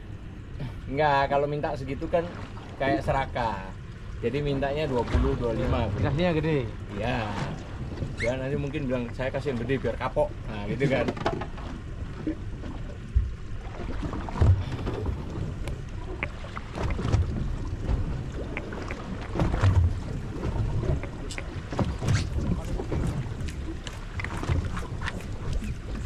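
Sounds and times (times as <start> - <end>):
water slapping against boat: 1.0 - 26.0
wind buffeting microphone: 12.2 - 26.0.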